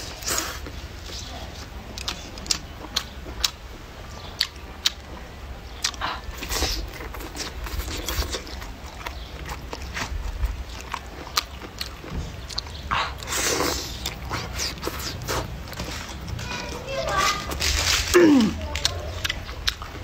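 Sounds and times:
chewing and crunching food: 0.0 - 20.0
slurping: 12.6 - 20.0.

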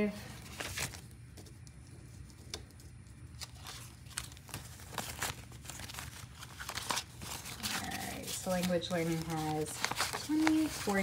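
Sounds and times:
paper money rustling: 0.0 - 11.0.

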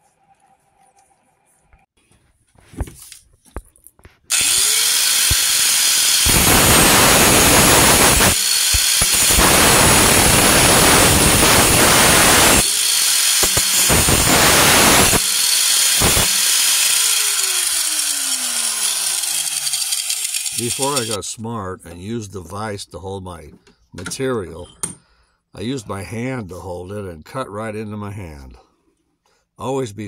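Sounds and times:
angle grinder cutting metal: 4.3 - 21.2
grinder motor winding down: 4.3 - 21.2.

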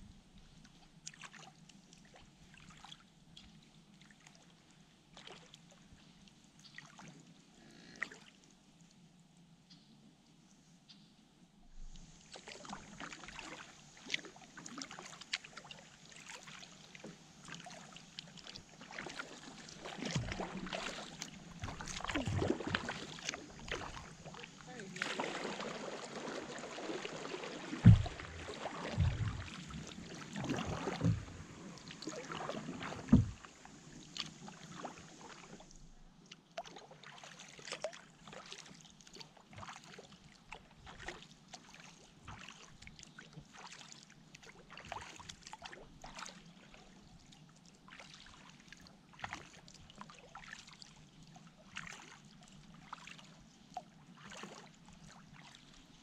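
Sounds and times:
paddle splashing and dripping: 0.4 - 8.3, 11.7 - 56.0
heavy low thumps: 27.8 - 28.4, 29.0 - 29.5.

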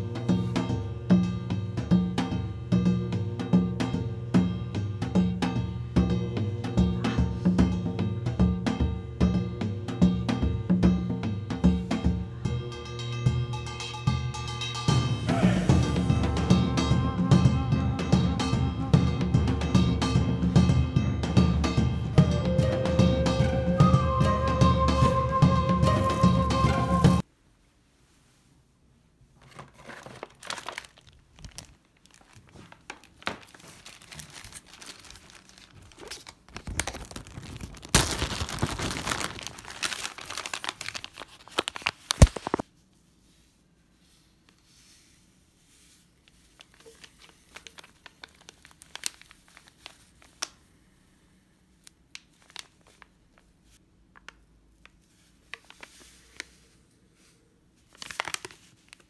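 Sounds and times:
packaging crinkling: 29.4 - 42.6, 46.2 - 50.7, 51.8 - 56.7, 57.8 - 59.0
foil sachet crinkling: 29.5 - 42.6, 46.2 - 50.7, 51.8 - 53.5, 54.2 - 56.8, 57.8 - 59.0.

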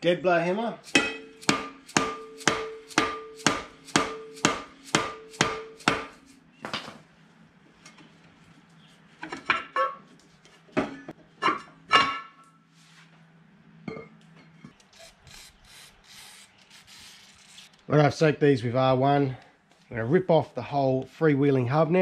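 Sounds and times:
hammer striking steel drum: 0.9 - 6.3
metallic clunks with ring: 1.0 - 4.4.

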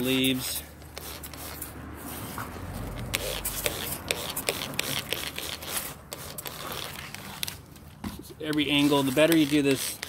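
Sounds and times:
spray bottle squirting: 0.8 - 1.7, 8.6 - 10.0.

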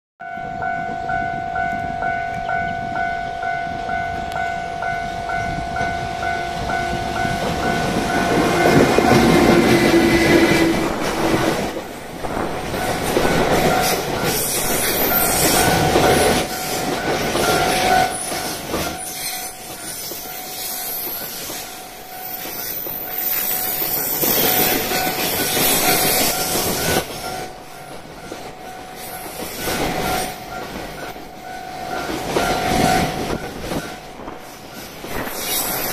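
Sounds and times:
freight train passing: 0.2 - 35.9
wagons clattering over rail joints: 6.6 - 20.3
level crossing bell ringing: 12.8 - 34.9.

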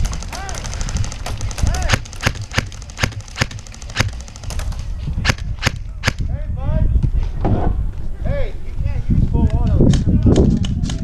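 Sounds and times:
airsoft guns firing: 0.0 - 6.2.

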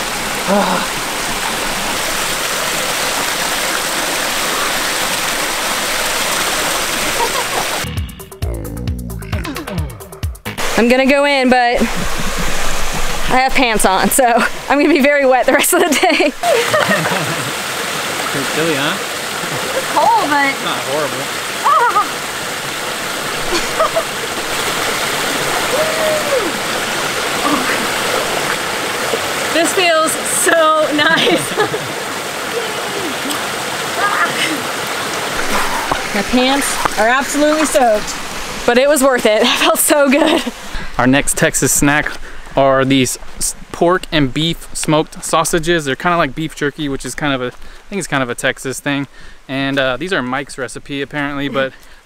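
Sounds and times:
waterfall rushing: 0.0 - 8.3, 9.6 - 43.3
short falling voice: 7.8 - 10.1.

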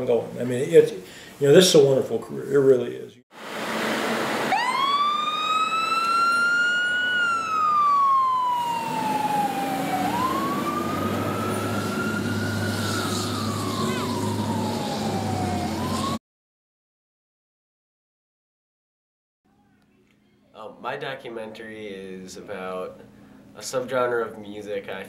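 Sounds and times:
fire engine siren wailing: 3.4 - 16.2
truck engine rumbling: 3.4 - 16.2.

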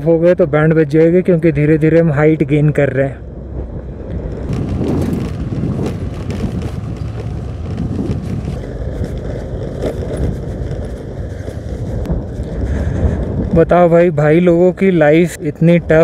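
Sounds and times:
tyre noise on gravel road: 3.3 - 16.0
scooter engine running: 4.0 - 13.4.

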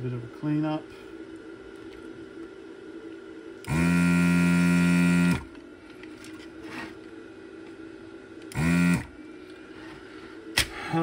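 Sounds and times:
small electric motor buzzing: 3.6 - 5.5, 8.5 - 9.2.

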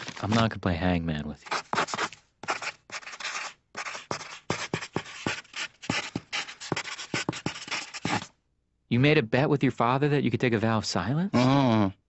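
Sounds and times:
pen scratching on paper: 1.4 - 8.3.

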